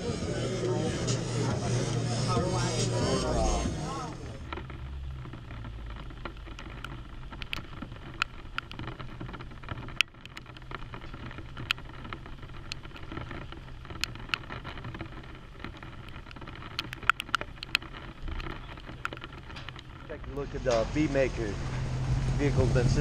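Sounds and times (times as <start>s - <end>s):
car engine low rumble: 0.0s - 23.0s
raindrops ticking on plastic lid: 4.4s - 20.7s.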